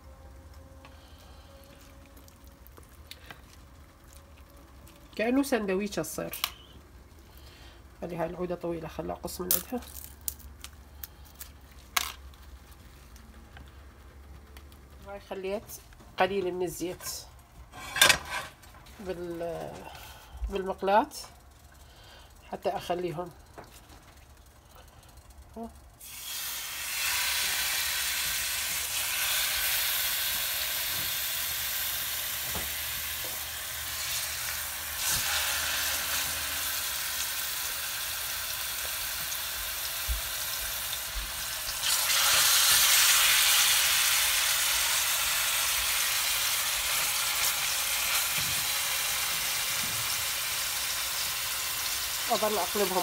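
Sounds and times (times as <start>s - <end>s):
chicken sizzling in a frying pan: 25.6s - 53.0s.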